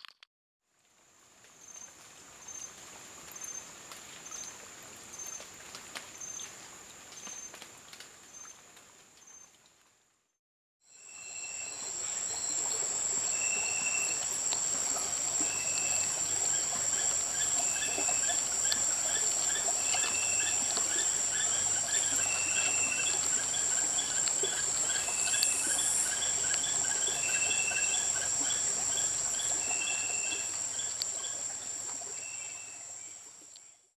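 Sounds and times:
insects trilling: 0:10.9 - 0:33.7
short insect call: 0:10.9 - 0:33.8
insects calling in fast pulses: 0:11.1 - 0:31.6.

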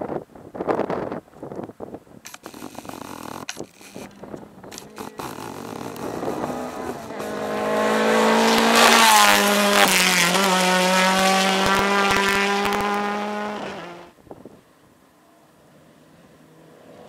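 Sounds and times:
rally car engine passing: 0:04.1 - 0:14.1, 0:15.6 - 0:17.0.

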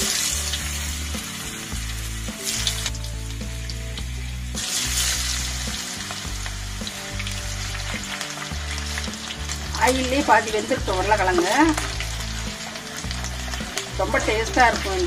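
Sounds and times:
potato wedges sizzling in oil: 0:00.0 - 0:15.0.

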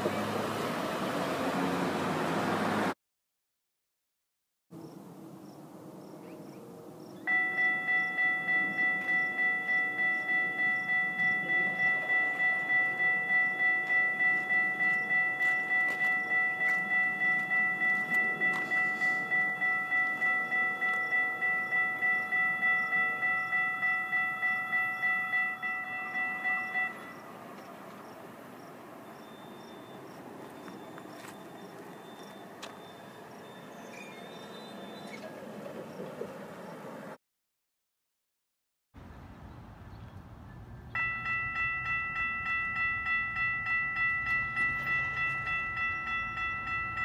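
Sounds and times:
railroad crossing bell ringing: 0:07.2 - 0:35.2, 0:41.0 - 0:47.0.

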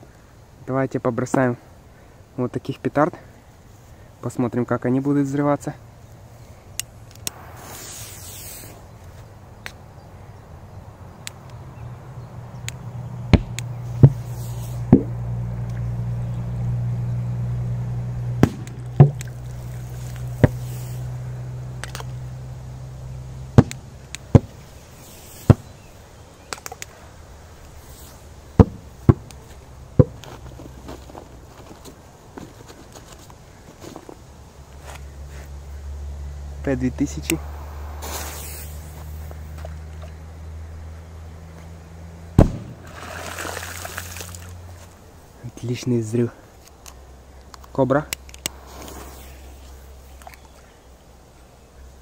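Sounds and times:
low steady hum: 0:01.5 - 0:52.0
lit fuse hissing: 0:07.2 - 0:09.0, 0:14.2 - 0:14.9, 0:19.6 - 0:21.1, 0:24.7 - 0:25.8, 0:27.6 - 0:28.4, 0:37.2 - 0:39.5, 0:48.5 - 0:50.2
firecrackers bursting: 0:07.3 - 0:08.9, 0:18.4 - 0:19.2, 0:37.3 - 0:39.4, 0:42.4 - 0:44.3, 0:48.5 - 0:49.9.

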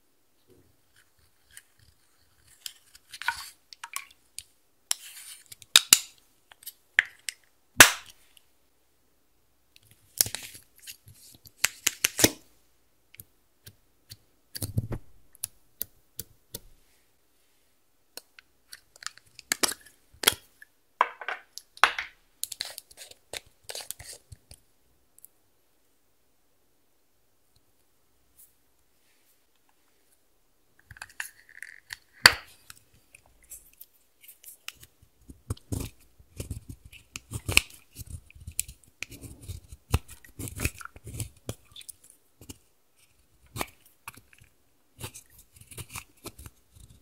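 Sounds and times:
crumbly scraping of eyeshadow: 0:00.8 - 0:03.6, 0:35.5 - 0:47.0.

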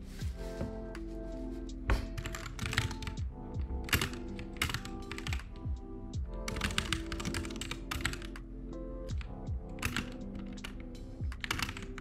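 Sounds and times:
lofi music with steady beat: 0:00.0 - 0:12.0
keyboard typing: 0:01.9 - 0:08.5, 0:09.1 - 0:12.0.

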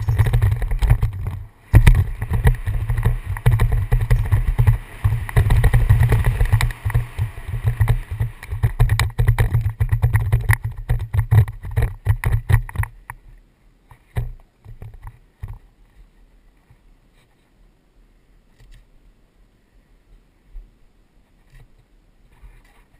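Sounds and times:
mountain bike rattling on trail: 0:00.0 - 0:13.2
wind rumble on microphone: 0:00.0 - 0:13.4.

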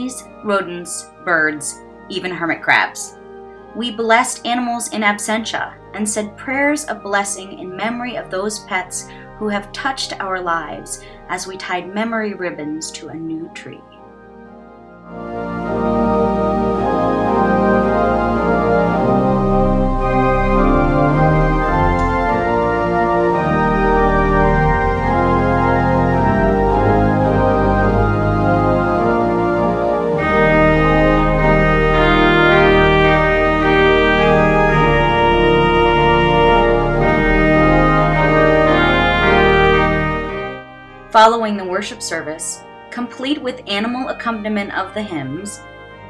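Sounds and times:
organ playing slow chords: 0:00.0 - 0:46.0.

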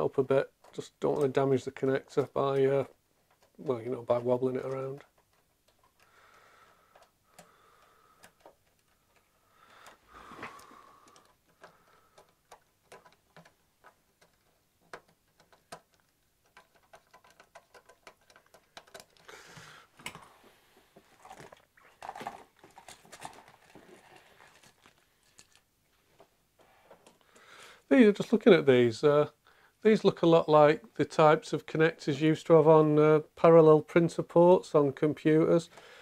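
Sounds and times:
connectors clicking and knocking: 0:00.0 - 0:20.3
cables rustling: 0:00.0 - 0:27.3.

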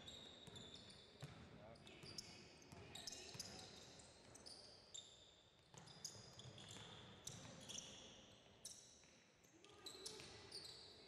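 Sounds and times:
sneaker squeaks: 0:00.0 - 0:01.4, 0:05.8 - 0:08.0, 0:09.8 - 0:11.0.

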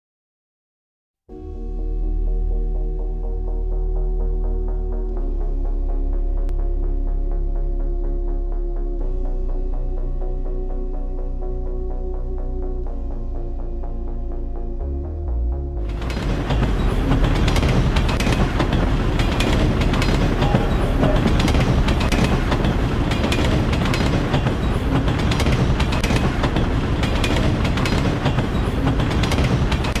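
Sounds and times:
music: 0:01.3 - 0:30.0
train wheels clacking on rails: 0:15.9 - 0:30.0.

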